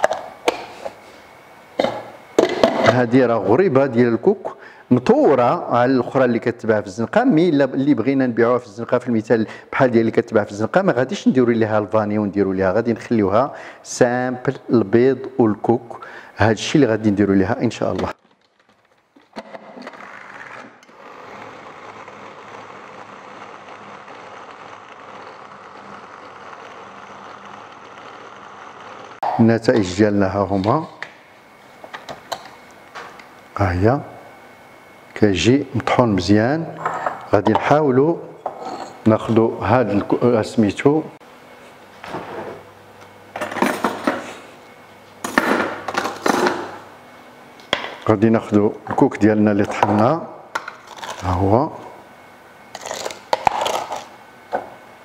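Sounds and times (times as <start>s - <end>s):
food chopper whirring: 19.3s - 29.2s, 52.7s - 54.7s.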